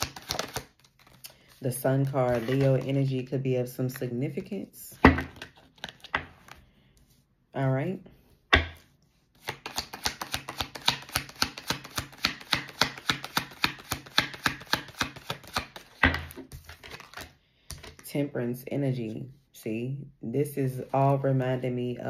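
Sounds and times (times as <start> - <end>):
cards being shuffled: 0.0 - 3.1, 5.2 - 6.6, 9.4 - 18.0.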